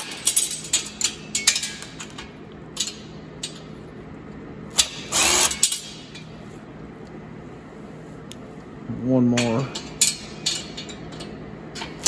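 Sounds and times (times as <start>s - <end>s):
cordless drill whirring: 5.1s - 5.5s.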